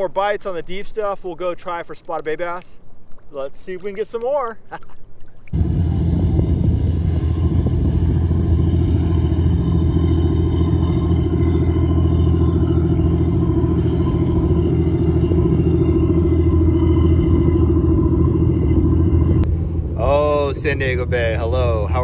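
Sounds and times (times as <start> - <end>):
boat motor humming: 5.4 - 22.0.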